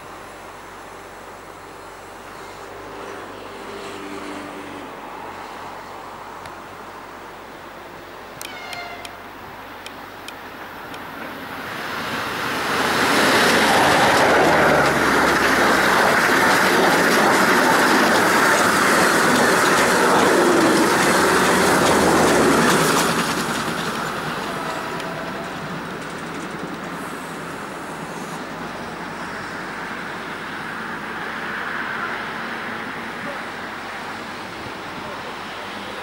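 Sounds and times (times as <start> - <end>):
train wheels rushing on rail: 0.0 - 36.0
rapid wheel clicks: 13.4 - 24.1.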